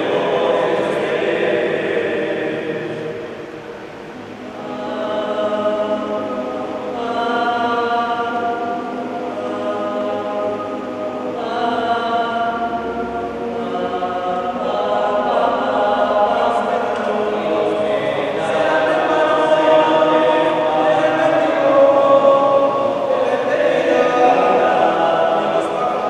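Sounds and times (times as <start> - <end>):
male choir singing in harmony: 0.0 - 26.0.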